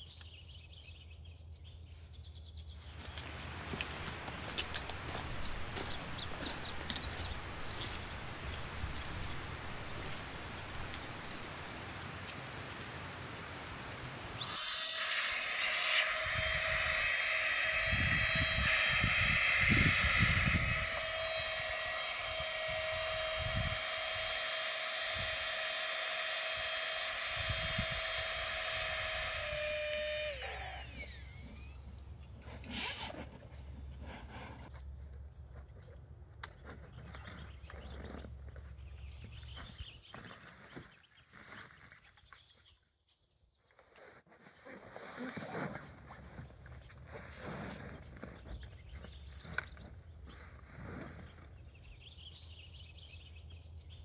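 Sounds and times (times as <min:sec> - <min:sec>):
birds chirping: 0:00.0 - 0:11.8, 0:36.9 - 0:42.8
air pump whining: 0:13.5 - 0:34.2.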